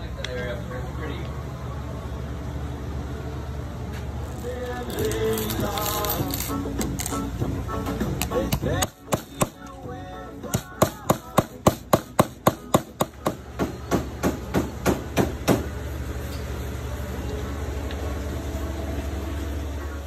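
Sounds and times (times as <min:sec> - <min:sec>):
steady low hum: 0:00.0 - 0:20.0
rapid sharp knocks: 0:10.6 - 0:15.6.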